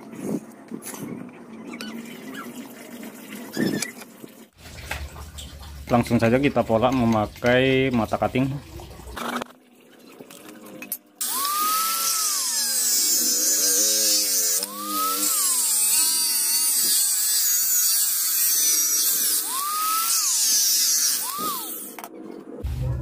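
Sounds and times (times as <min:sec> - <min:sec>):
rotary grinder whining: 0:11.2 - 0:22.0.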